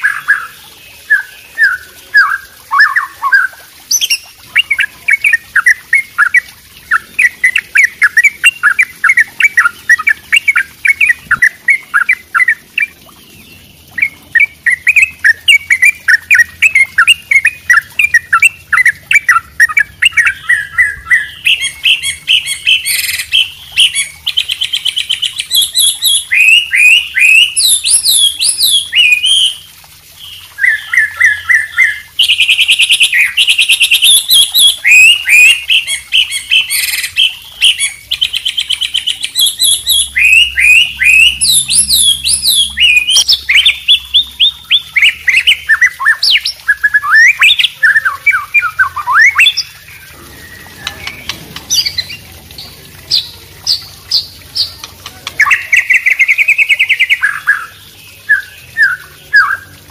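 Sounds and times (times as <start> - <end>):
songbirds singing: 0.0 - 59.9.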